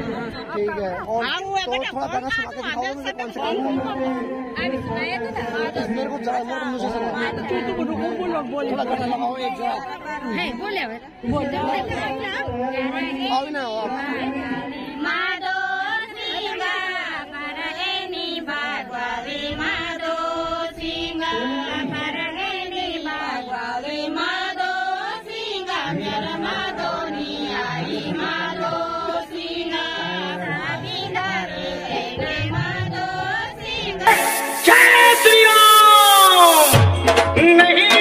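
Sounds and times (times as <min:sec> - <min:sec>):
women singing in chorus: 0:11.2 - 0:35.2
sudden loud burst: 0:34.1 - 0:36.8.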